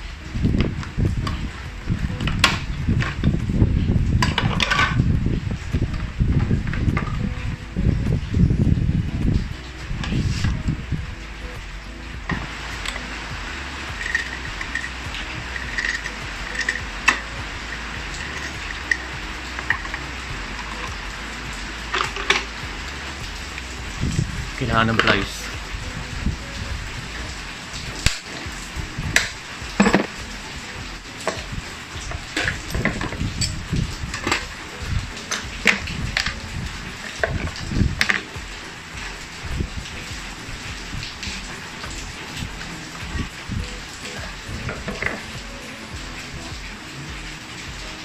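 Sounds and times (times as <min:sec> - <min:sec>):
steady hiss: 0:00.0 - 0:48.0
hand tools clicking and knocking: 0:13.9 - 0:17.2, 0:29.2 - 0:30.2
hand tools tapping on scooter: 0:13.9 - 0:22.8.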